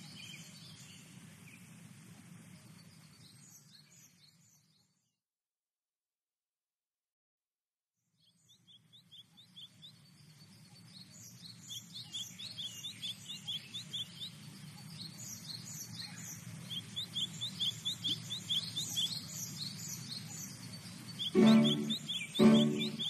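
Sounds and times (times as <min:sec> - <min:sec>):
small birds chirping: 0:00.0 - 0:05.2, 0:08.1 - 0:23.0.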